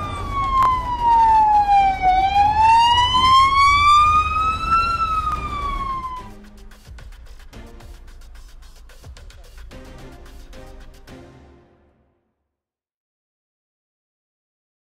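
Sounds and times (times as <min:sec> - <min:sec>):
emergency siren wailing: 0:00.0 - 0:06.4.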